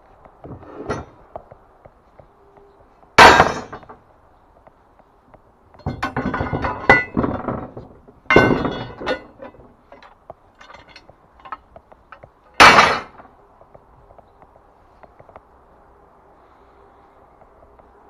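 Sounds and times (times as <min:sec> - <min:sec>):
metal scaffold parts clanking: 0:00.4 - 0:01.2, 0:03.2 - 0:04.0, 0:05.7 - 0:13.3
small metal clinks: 0:08.3 - 0:12.2.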